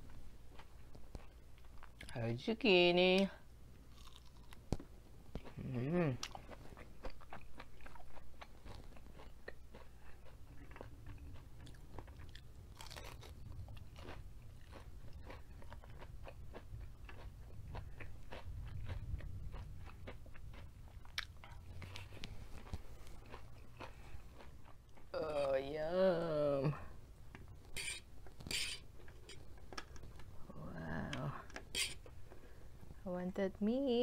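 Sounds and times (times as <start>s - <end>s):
chewing crunchy food: 0.1s - 2.2s, 3.9s - 25.5s
low hum: 9.8s - 34.0s.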